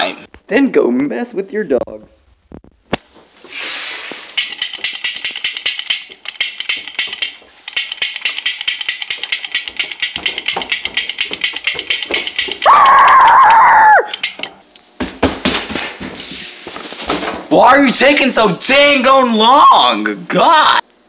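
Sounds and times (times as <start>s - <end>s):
toy ratchet clicking: 4.4s - 14.5s.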